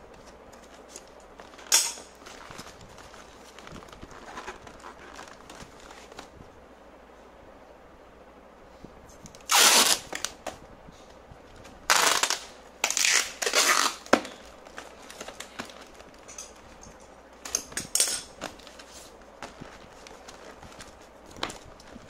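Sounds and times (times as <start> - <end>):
packing tape pulled off roll: 9.3 - 10.6, 11.9 - 16.5.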